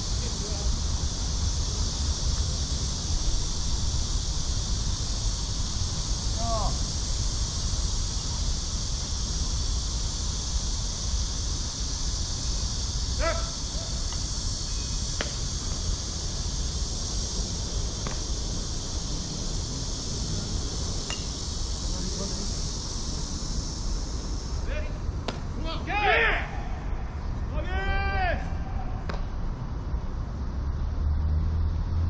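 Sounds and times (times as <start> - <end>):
wind rumble on microphone: 0.0 - 25.8
insects droning: 0.0 - 32.0
person shouting: 13.2 - 14.0, 25.6 - 27.0, 27.6 - 29.0.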